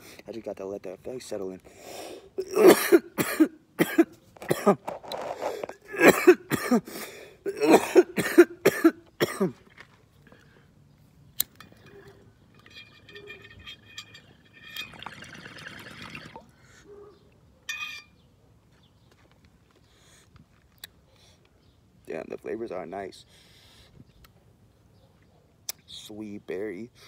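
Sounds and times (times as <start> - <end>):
man coughing harshly: 2.4 - 4.8, 5.9 - 9.6.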